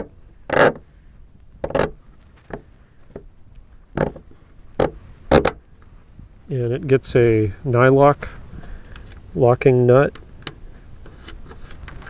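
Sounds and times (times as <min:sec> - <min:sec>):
tail bolt scraping and clicking: 0:00.0 - 0:00.9, 0:01.6 - 0:06.0, 0:08.6 - 0:09.3, 0:10.1 - 0:12.0.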